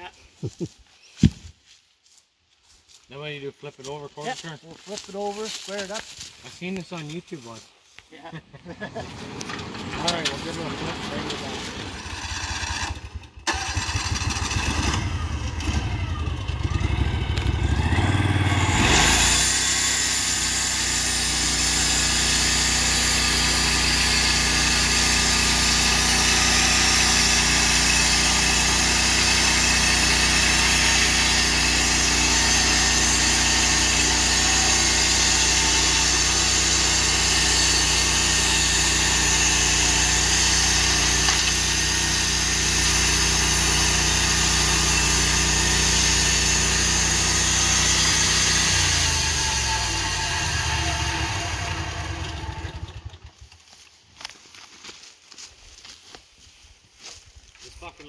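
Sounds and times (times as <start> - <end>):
sawmill gas engine revving: 8.8 - 53.4
band blade cutting log: 17.4 - 51.7.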